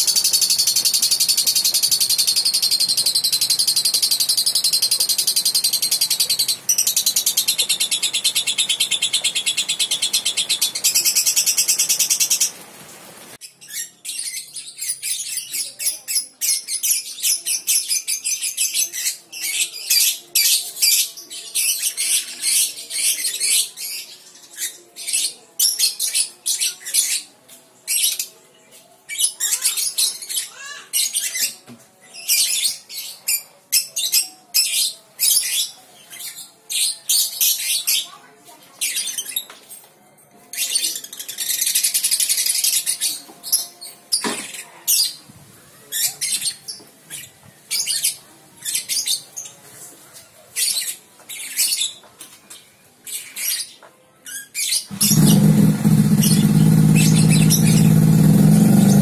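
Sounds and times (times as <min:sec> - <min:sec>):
lovebird singing: 0:00.0 - 0:12.6, 0:54.3 - 0:59.0.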